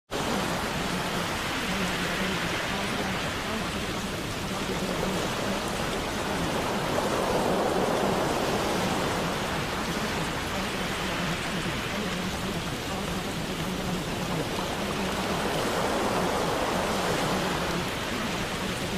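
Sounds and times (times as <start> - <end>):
steady water noise: 0.1 - 18.9.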